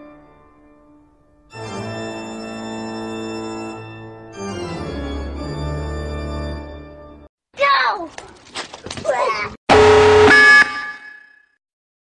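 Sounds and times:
organ playing sustained chords: 1.5s - 6.9s.

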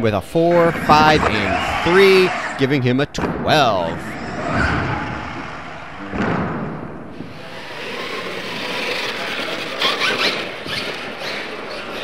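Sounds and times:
toy truck motor and tyre noise: 7.2s - 12.0s.

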